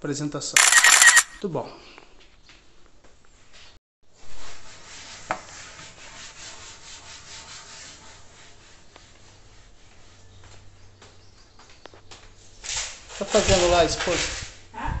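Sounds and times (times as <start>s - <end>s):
sharp click: 0.6s - 1.4s.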